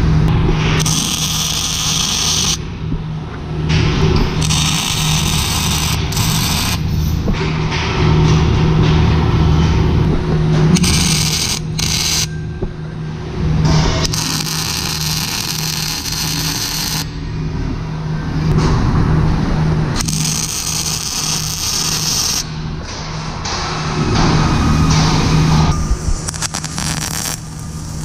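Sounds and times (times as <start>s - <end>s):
low machine hum: 0.0s - 28.0s
welding arc crackling: 0.8s - 2.6s, 4.2s - 7.2s, 10.7s - 12.3s, 13.9s - 17.1s, 20.0s - 22.5s, 25.8s - 28.0s.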